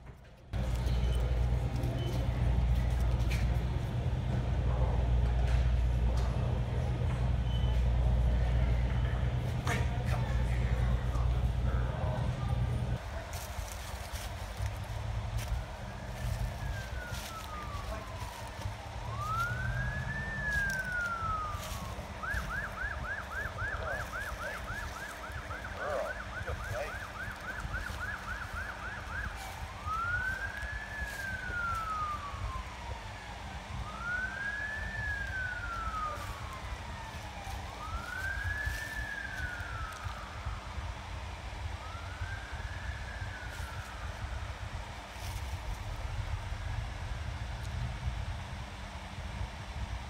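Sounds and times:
siren slow wail: 0.6 - 50.0
siren fast yelp: 15.7 - 40.7.

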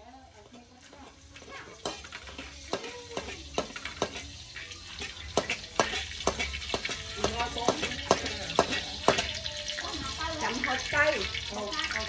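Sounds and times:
food sizzling: 0.0 - 12.0
metal utensil scraping wok: 0.0 - 12.0
wok ringing: 0.0 - 12.0.

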